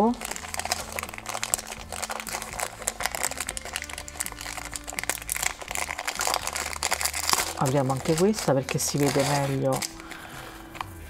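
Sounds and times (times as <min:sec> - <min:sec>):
packaging crinkling and rustling: 0:00.0 - 0:11.0.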